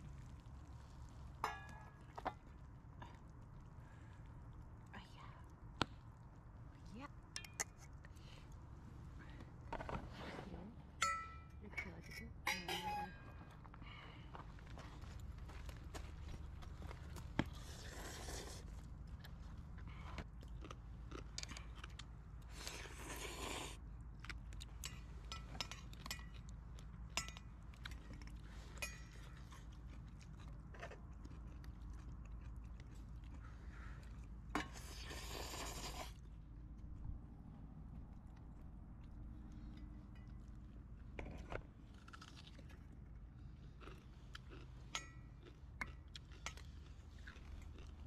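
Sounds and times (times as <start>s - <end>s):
low rumble: 36.3s - 41.0s.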